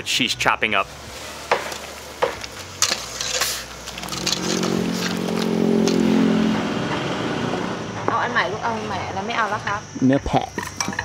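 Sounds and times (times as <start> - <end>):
vehicle engine hum: 0.8 - 10.0
metal tongs and utensils clinking: 1.7 - 6.2.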